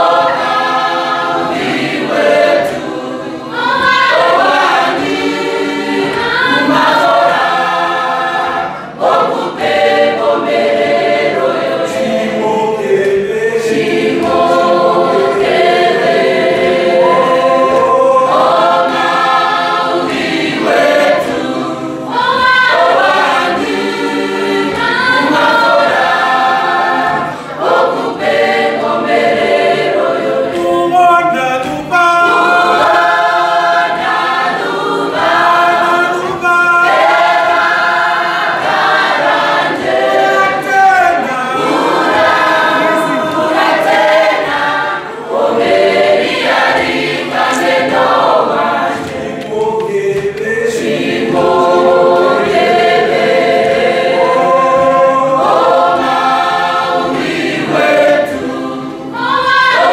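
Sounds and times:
youth choir singing: 0.0 - 59.9.

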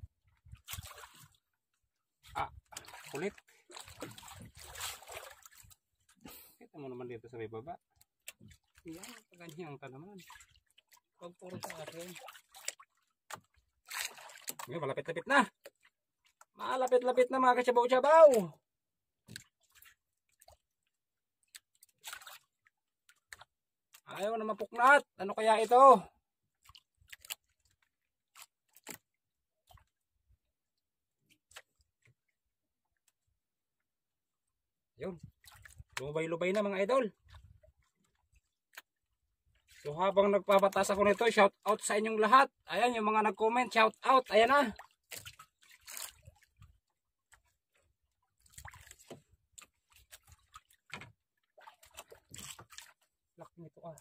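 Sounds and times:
water sloshing against boat hull: 0.0 - 6.4, 7.3 - 54.0
fishing line knocks and rustles: 48.8 - 52.9.

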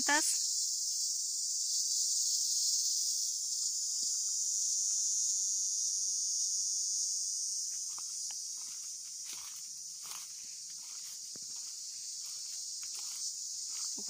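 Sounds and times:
insect chorus drone: 0.0 - 14.0
footsteps on dry leaves: 7.8 - 14.0.

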